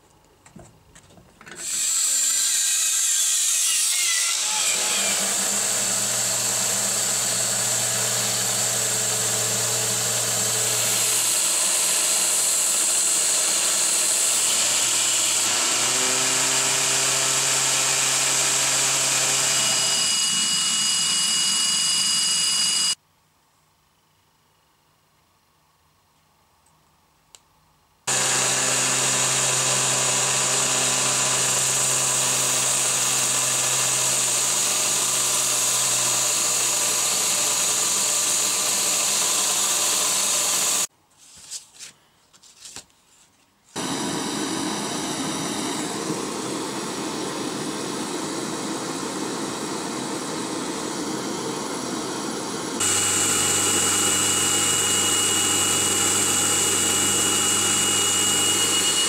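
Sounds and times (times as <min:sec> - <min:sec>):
belt grinder grinding steel rod: 0:28.1 - 0:40.9, 0:52.8 - 0:59.0.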